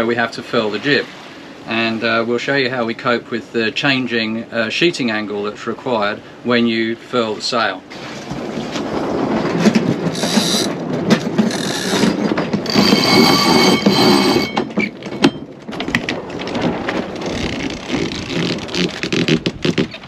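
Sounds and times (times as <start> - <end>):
winch ratcheting clicks: 10.1 - 10.7, 11.4 - 14.5.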